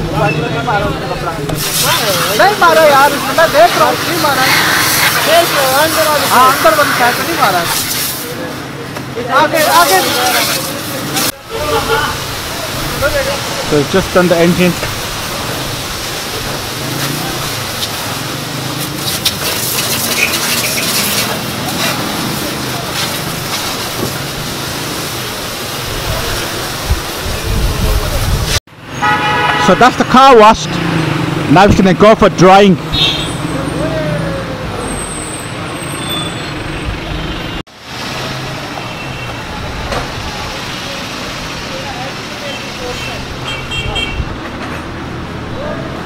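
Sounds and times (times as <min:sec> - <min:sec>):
street traffic noise: 0:00.0 - 0:46.0
hose water spraying: 0:01.4 - 0:28.6.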